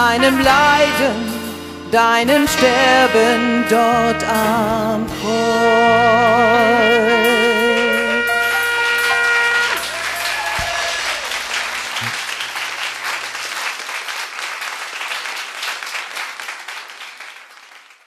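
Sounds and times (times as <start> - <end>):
held music chord: 0.0 - 9.8
audience applause: 8.5 - 18.0.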